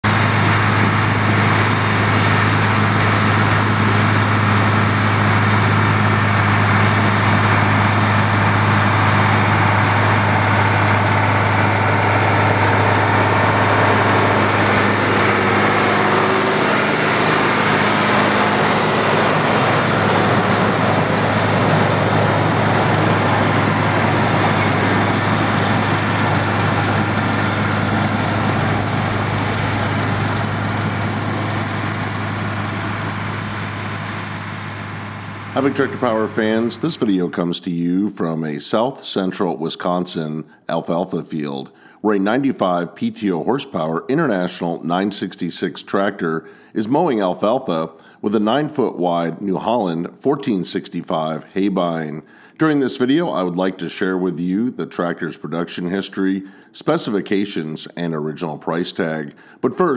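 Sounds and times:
tractor engine under load: 0.0 - 37.5.

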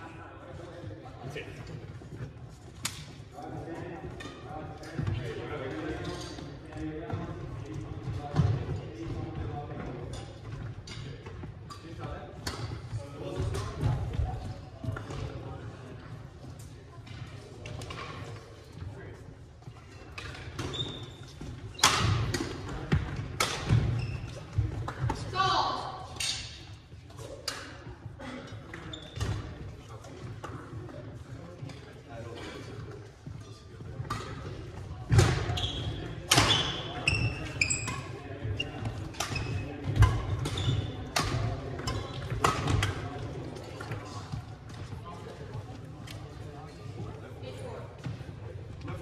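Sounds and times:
sneakers squeaking on wooden floor: 19.6 - 22.3, 22.9 - 24.8, 28.8 - 29.6, 35.1 - 41.1.

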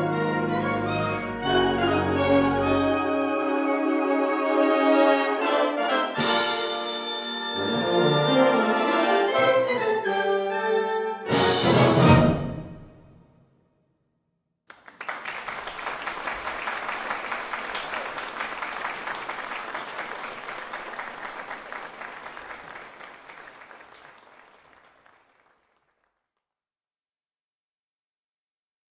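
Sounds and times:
audience applauding: 14.7 - 26.2.

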